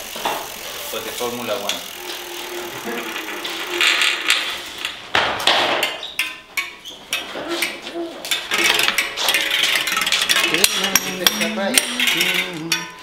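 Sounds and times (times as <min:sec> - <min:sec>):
metallic knocks on bicycle wheel: 0:05.1 - 0:13.0.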